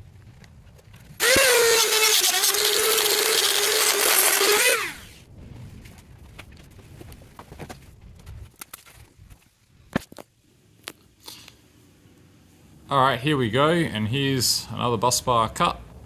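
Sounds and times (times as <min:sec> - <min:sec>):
rotary tool high whine: 0:01.2 - 0:05.2.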